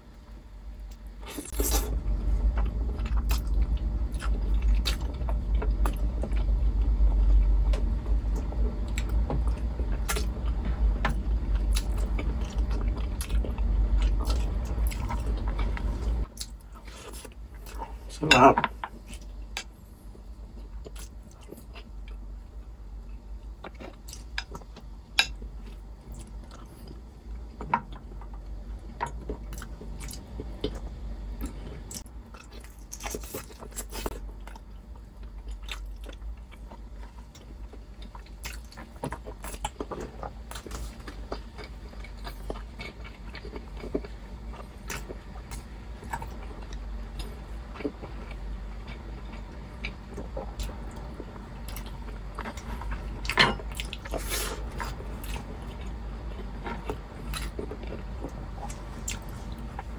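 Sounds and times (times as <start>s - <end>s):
chewing and lip-smacking: 2.6s - 18.0s, 23.6s - 59.9s.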